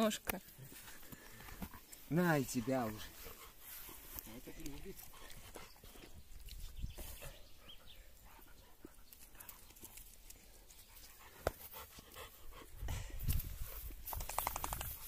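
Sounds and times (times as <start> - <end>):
dog panting: 1.5 - 6.2, 7.2 - 14.0.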